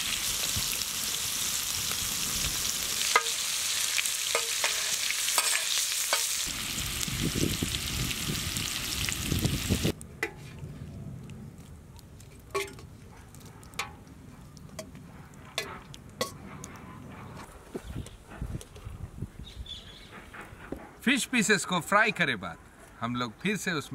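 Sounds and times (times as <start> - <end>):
fish sizzling in hot oil: 0.0 - 10.0.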